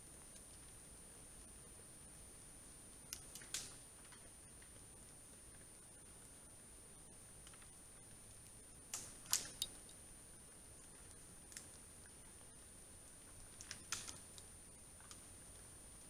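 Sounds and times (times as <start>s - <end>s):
twigs snapping and crackling: 3.1s - 4.2s, 8.4s - 10.0s, 10.8s - 11.9s, 13.3s - 15.2s.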